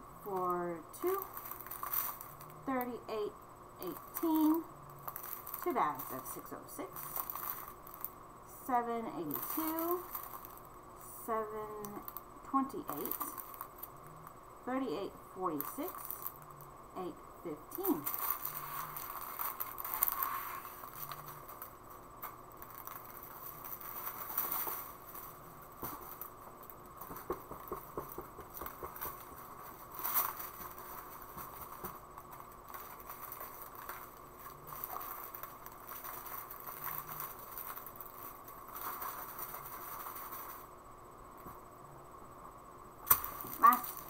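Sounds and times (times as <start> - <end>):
plastic bags crinkling: 0.3 - 3.0, 3.8 - 8.2, 9.2 - 10.7, 12.8 - 14.0, 15.6 - 16.6, 17.7 - 40.7, 43.1 - 44.0.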